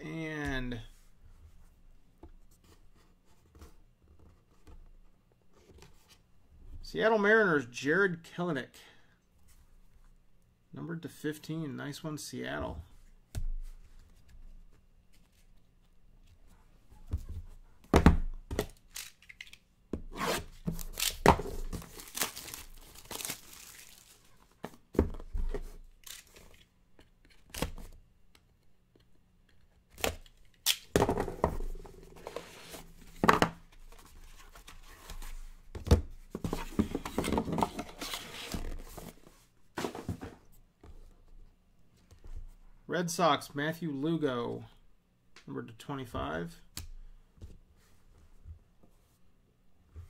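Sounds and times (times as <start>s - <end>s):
shrink wrap tearing and crinkling: 18.8s - 19.6s, 20.8s - 24.3s, 26.0s - 26.6s
cardboard box knocks and scrapes: 39.8s - 40.4s.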